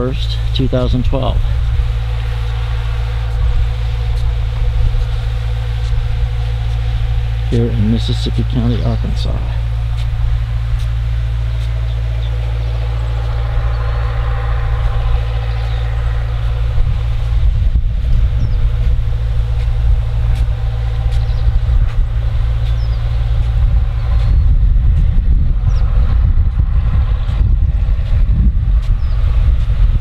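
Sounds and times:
distant diesel engine drone: 0.0s - 30.0s
wind buffeting microphone: 0.0s - 30.0s.

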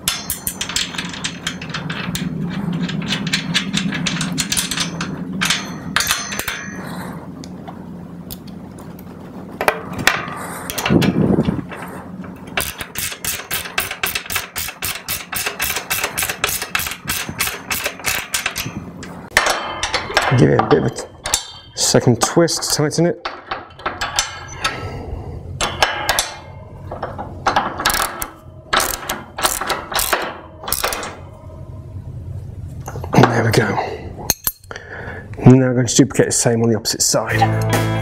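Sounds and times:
metal clicks and clinks: 0.0s - 6.8s.

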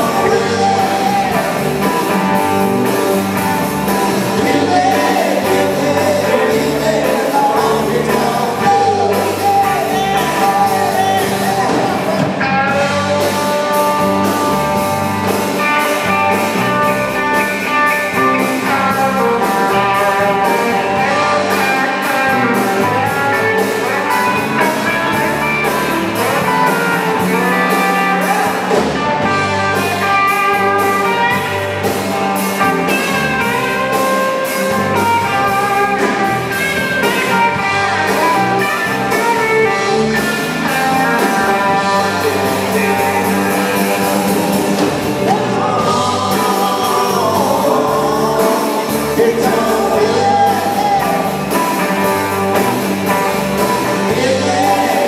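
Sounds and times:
lead vocal singing: 0.0s - 2.7s, 4.0s - 13.8s, 32.9s - 52.8s, 53.6s - 55.0s
drum kit: 0.0s - 55.0s
electric guitars: 0.0s - 55.0s.

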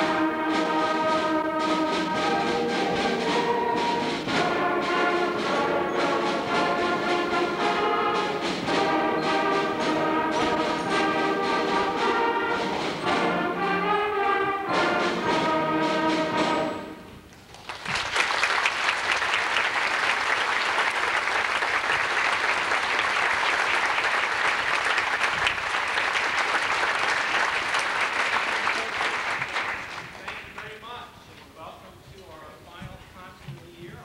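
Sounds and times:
wind band sustained chords: 0.0s - 17.3s
audience applauding: 17.4s - 30.9s.

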